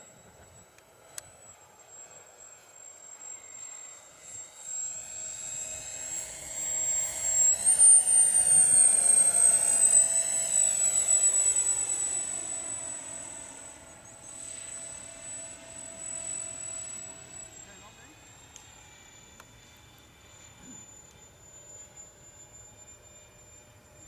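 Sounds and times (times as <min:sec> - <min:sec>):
model jet fan whining: 0:00.0 - 0:24.0.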